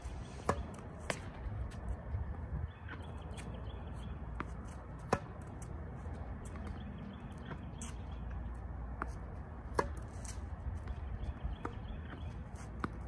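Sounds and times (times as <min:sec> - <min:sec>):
low wind rumble: 0:00.0 - 0:12.5
tennis racket hitting ball: 0:04.4 - 0:05.8, 0:08.9 - 0:13.0.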